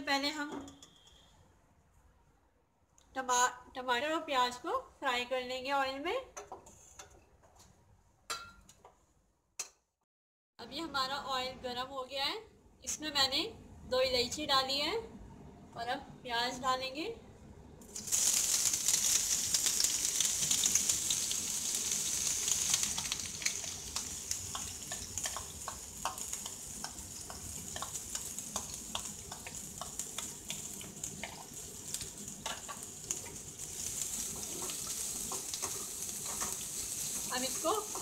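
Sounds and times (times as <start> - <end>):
spoon scraping a pan: 0.6 - 1.3, 34.2 - 38.0
onions sizzling in hot oil: 17.8 - 38.0.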